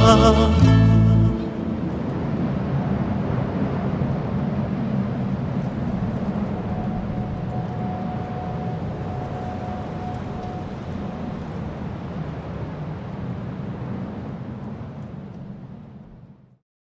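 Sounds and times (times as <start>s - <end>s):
low droning ambience: 0.0s - 16.6s
thin held tone: 6.7s - 11.6s.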